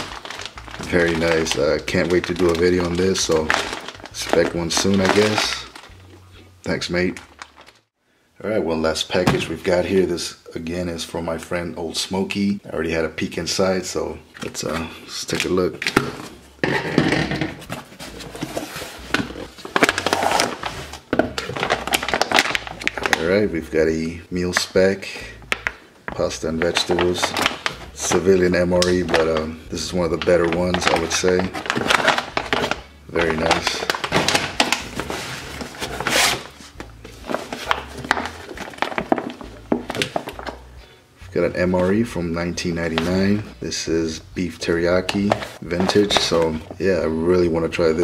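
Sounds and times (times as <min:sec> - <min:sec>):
plastic pouches crinkling: 0:00.0 - 0:07.9, 0:17.7 - 0:23.6, 0:24.4 - 0:40.7, 0:45.0 - 0:46.8.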